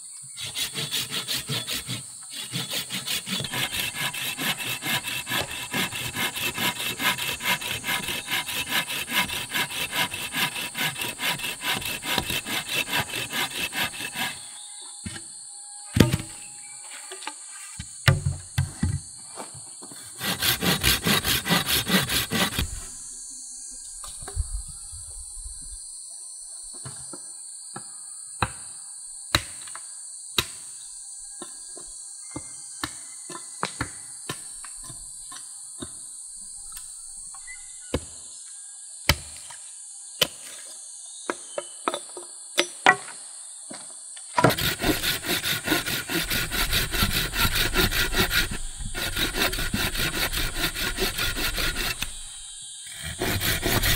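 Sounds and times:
insects droning: 0.0 - 53.9
hand saw cutting log: 0.3 - 14.6, 20.0 - 22.8, 44.4 - 53.9.

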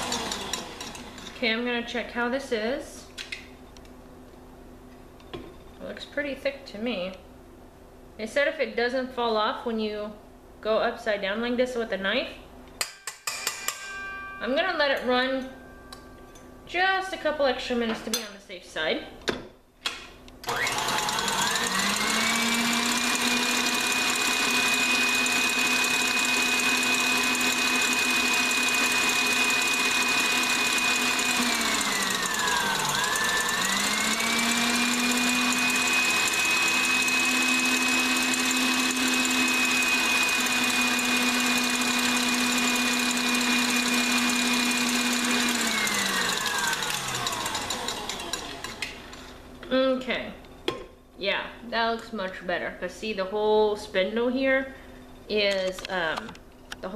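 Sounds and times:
stand mixer motor whine: 0.0 - 1.4, 20.5 - 49.3.

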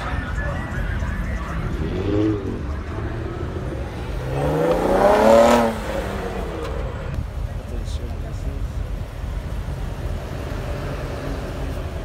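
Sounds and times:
car accelerating past: 3.3 - 6.9.

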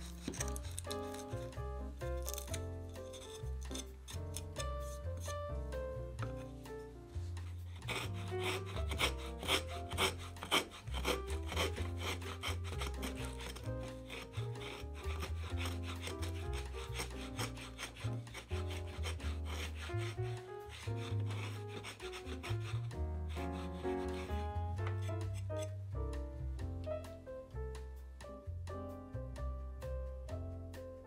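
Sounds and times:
hand plane scraping wood: 0.0 - 1.6, 2.2 - 5.5, 7.2 - 25.8
background music: 0.0 - 31.0.

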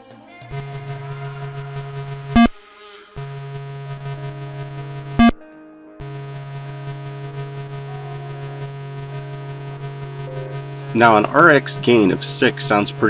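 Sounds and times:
metal detector buzzing hum: 0.5 - 5.4, 6.0 - 13.0.

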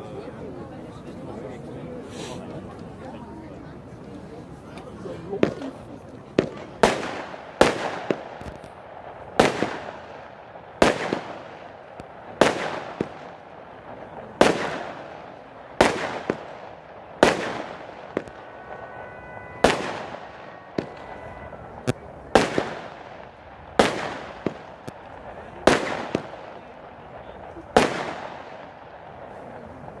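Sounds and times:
firework shells banging: 5.4 - 29.3.

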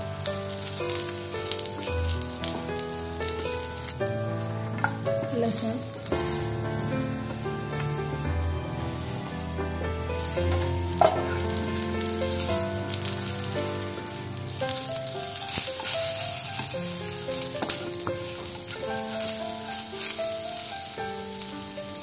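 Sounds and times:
food sizzling in oil: 0.0 - 22.0
soft background melody: 0.0 - 22.0
wooden spatula knocking pan: 4.4 - 8.3, 10.2 - 13.5.

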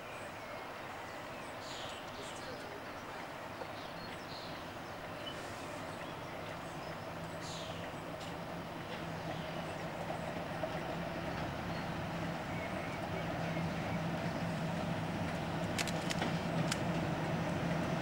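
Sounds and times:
diesel locomotive engine humming: 0.0 - 18.0
sharp clicks: 15.6 - 17.0.

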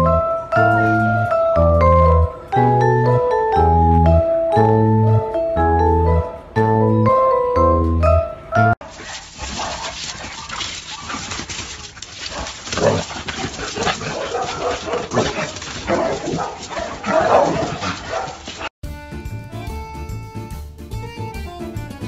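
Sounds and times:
dogs barking and yelping: 8.8 - 18.7.

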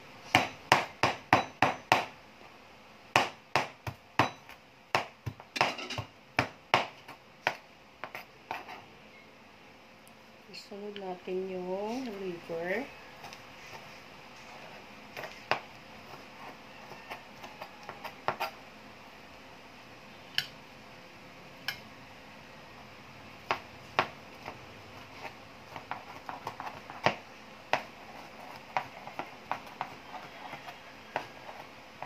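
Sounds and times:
knife chopping on plastic board: 0.3 - 2.1, 3.1 - 8.8, 15.2 - 15.7, 16.8 - 18.6, 23.4 - 32.0.

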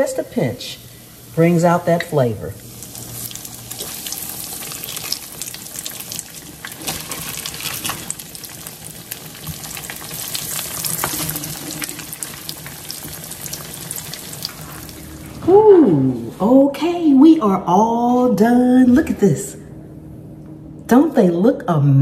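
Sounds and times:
patties sizzling in hot oil: 0.0 - 15.4.

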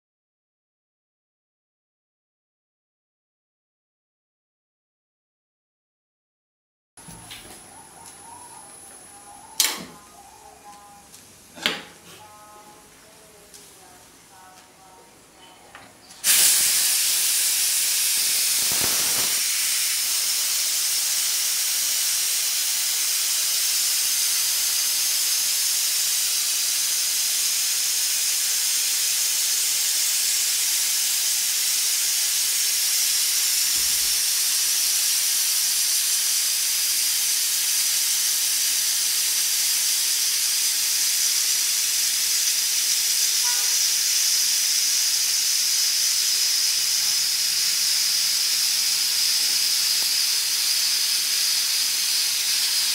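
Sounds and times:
pressure cooker steam hiss: 7.1 - 10.8, 16.2 - 52.9
high whistling: 43.0 - 52.9.

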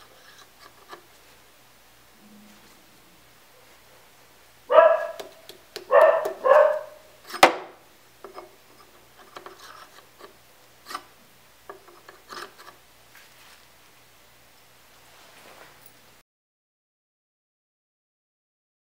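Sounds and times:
metal rod rubbing in hole: 8.3 - 11.1, 11.8 - 12.8.

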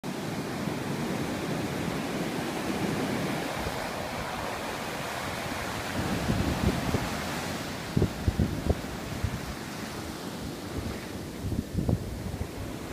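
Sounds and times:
ocean surf breaking: 0.0 - 12.9
wind buffeting microphone: 0.6 - 12.9.

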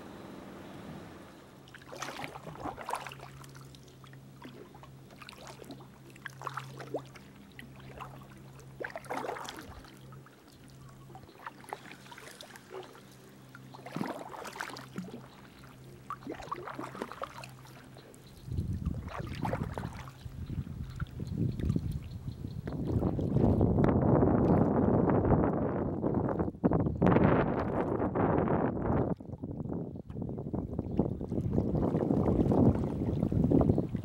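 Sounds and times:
water splashing and dripping: 1.6 - 10.1, 13.6 - 23.6
kayak paddle strokes: 1.6 - 22.1.

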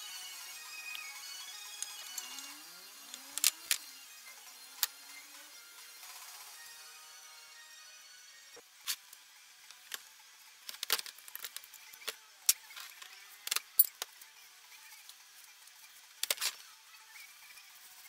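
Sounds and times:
metal tools clinking: 13.5 - 14.1.

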